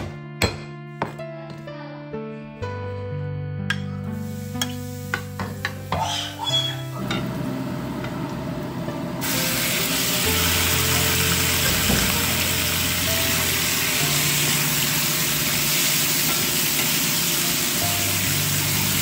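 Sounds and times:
chicken sizzling in oil: 4.1 - 7.5, 9.2 - 19.0.

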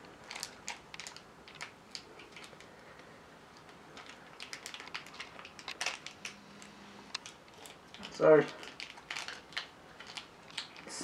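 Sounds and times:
plastic sachet crinkling: 0.0 - 11.0.

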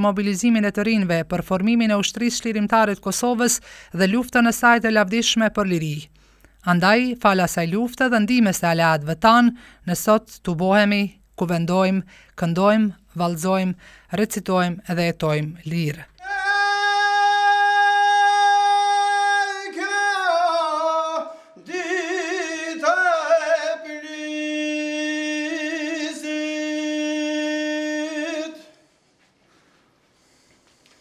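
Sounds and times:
man singing unaccompanied: 16.2 - 28.8.

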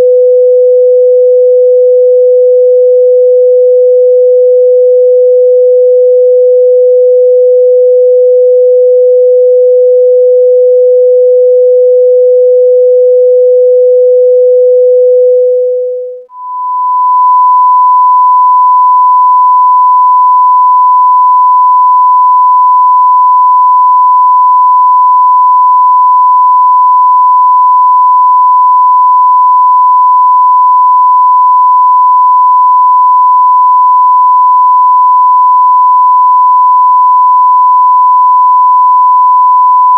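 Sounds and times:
low sine-wave test tone: 0.0 - 39.9
high sine-wave test tone: 13.2 - 39.9.

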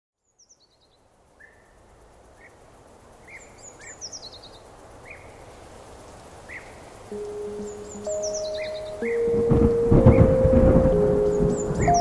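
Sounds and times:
steady background hiss: 0.2 - 12.0
birds chirping: 6.4 - 12.0
high falling bird trill: 7.1 - 12.0.

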